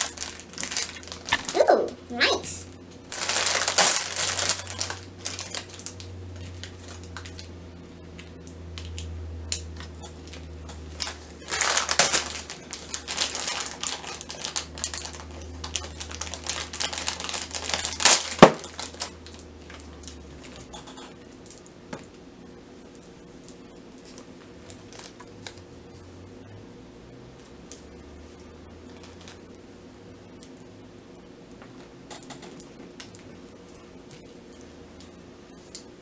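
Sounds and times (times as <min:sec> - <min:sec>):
plastic packaging crinkling: 0:00.0 - 0:02.4, 0:03.0 - 0:07.5, 0:08.2 - 0:22.0, 0:23.4 - 0:25.7, 0:28.9 - 0:29.5
low steady hum: 0:00.0 - 0:36.0.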